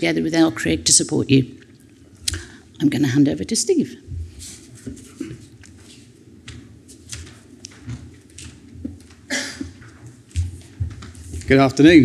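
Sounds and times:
steady low hum: 0.0s - 12.0s
microphone handling taps and clicks: 6.5s - 11.5s.

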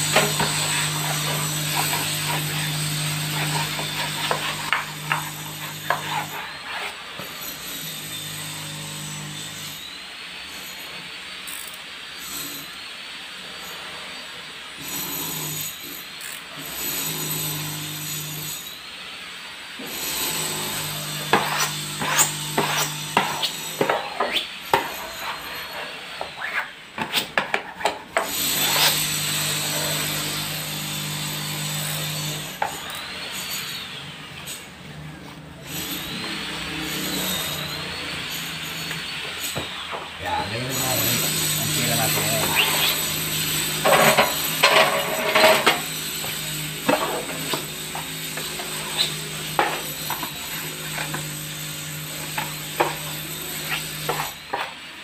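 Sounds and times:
plastic smoother scraping wallpaper: 0.0s - 7.4s, 21.2s - 29.0s, 40.8s - 43.2s, 43.8s - 51.2s.

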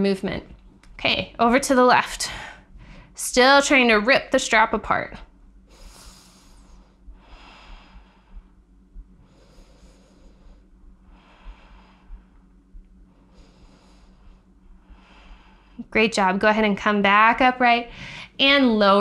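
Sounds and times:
woman breathing slowly: 2.2s - 3.2s, 5.6s - 15.9s, 17.9s - 18.4s.

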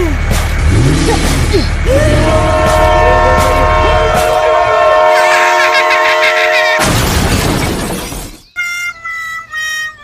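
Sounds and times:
train horn blast: 2.0s - 6.8s.

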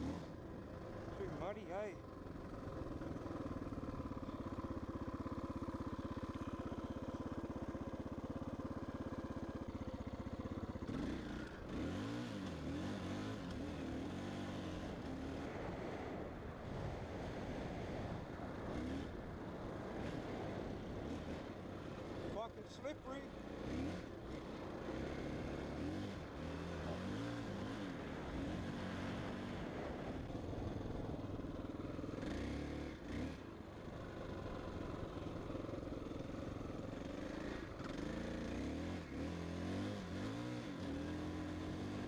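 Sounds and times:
dirt bike engine revving: 10.8s - 14.9s, 23.0s - 29.7s, 32.2s - 33.4s, 36.9s - 42.0s.

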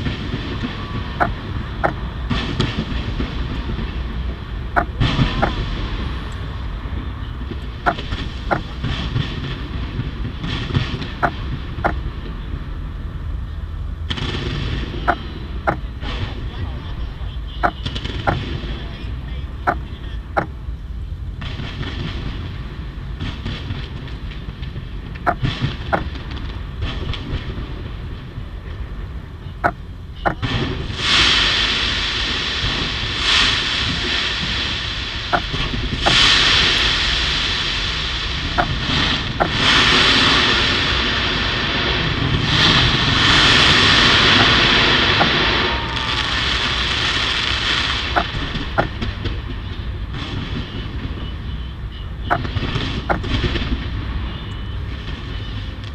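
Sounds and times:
fireworks bangs: 0.0s - 13.4s, 14.0s - 20.7s, 21.4s - 55.9s
fireworks barrage rumble: 0.0s - 55.9s.

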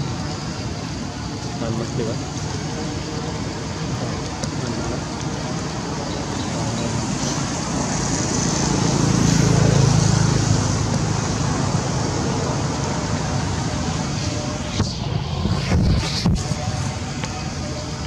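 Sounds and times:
road traffic noise: 0.0s - 18.0s
vehicle passing close by: 7.0s - 16.8s.

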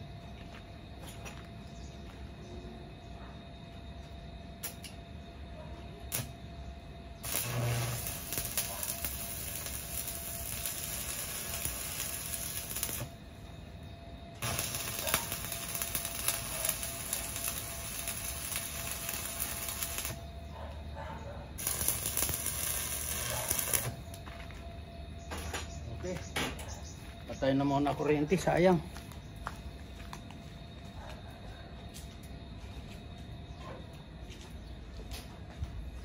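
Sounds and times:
welding arc crackling: 6.1s - 6.3s, 7.2s - 13.2s, 14.4s - 20.3s, 21.6s - 24.2s.

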